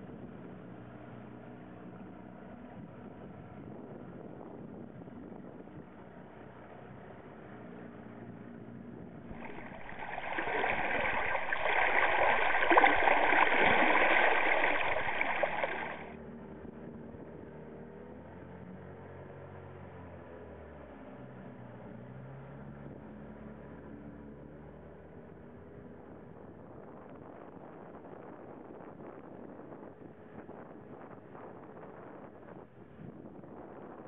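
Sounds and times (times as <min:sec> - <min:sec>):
water rushing along boat hull: 0:09.3 - 0:16.1
wind noise: 0:09.3 - 0:16.1.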